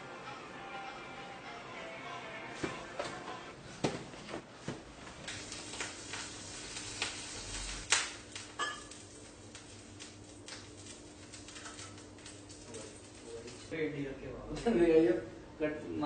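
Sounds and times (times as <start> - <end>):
pots and utensils clattering: 8.5 - 9.0.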